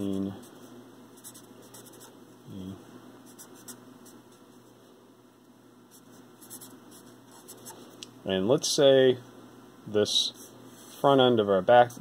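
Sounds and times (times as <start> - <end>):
marker writing on paper: 6.4 - 7.8.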